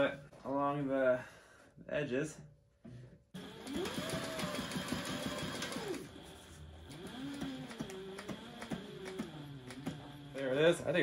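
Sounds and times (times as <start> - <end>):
sewing machine stitching: 3.4 - 11.0.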